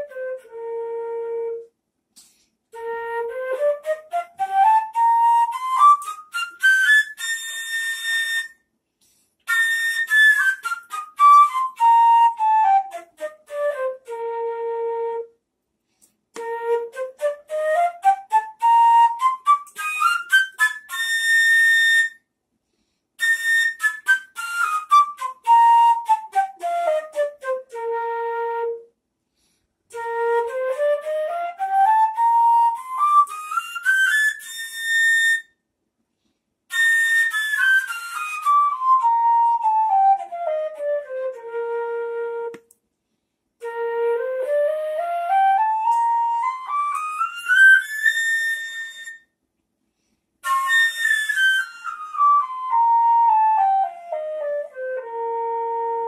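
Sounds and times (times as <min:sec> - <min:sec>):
flute playing scale: 0:00.0 - 0:08.6, 0:09.4 - 0:15.4, 0:16.3 - 0:22.2, 0:23.2 - 0:28.9, 0:29.9 - 0:35.6, 0:36.7 - 0:42.7, 0:43.6 - 0:49.3, 0:50.4 - 0:56.0.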